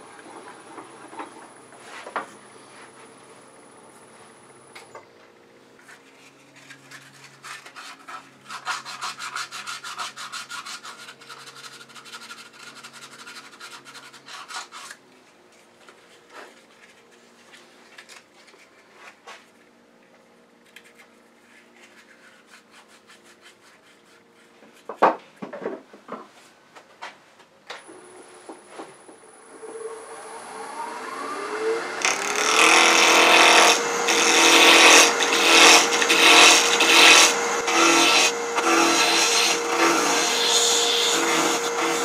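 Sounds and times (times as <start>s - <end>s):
rubbing and scraping on wood: 5.8s - 17.8s.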